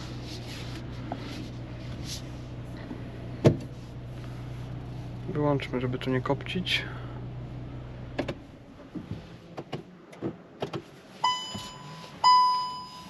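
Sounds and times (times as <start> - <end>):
car engine idling: 0.0 - 13.0
dashboard warning chime: 11.2 - 13.0.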